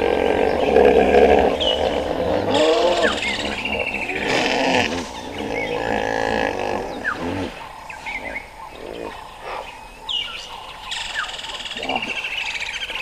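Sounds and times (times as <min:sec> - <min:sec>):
large animal's low wavering call: 0:00.0 - 0:07.6
birds chirping and whistling: 0:00.0 - 0:13.0.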